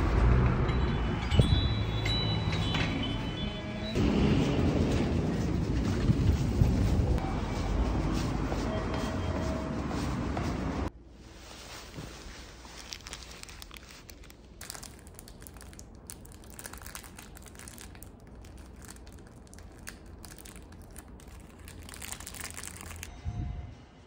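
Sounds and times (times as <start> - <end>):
plastic wrapper crinkling: 12.3 - 23.1.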